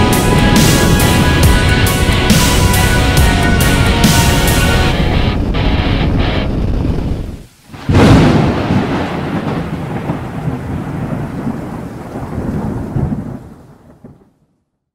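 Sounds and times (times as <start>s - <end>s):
background music: 0.0s - 7.4s
thunderclap crack and rumble: 0.0s - 14.5s.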